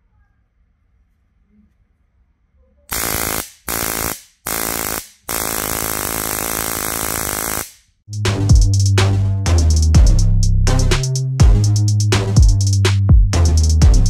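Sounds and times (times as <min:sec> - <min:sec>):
electric spark buzzing zaps: 0:02.9 - 0:08.0
electronic music with drums: 0:08.1 - 0:14.0.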